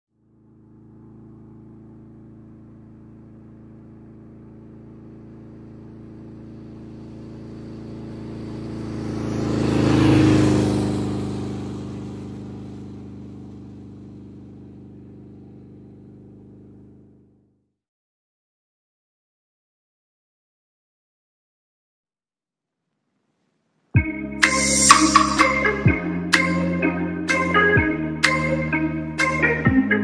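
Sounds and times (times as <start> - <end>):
motorcycle passing by: 0.2 - 17.4, 24.4 - 27.9.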